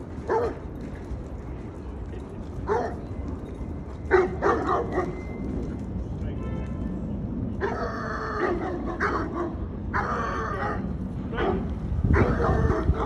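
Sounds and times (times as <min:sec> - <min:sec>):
large dog barking: 0:00.3 - 0:00.6, 0:04.1 - 0:05.1, 0:07.6 - 0:13.0.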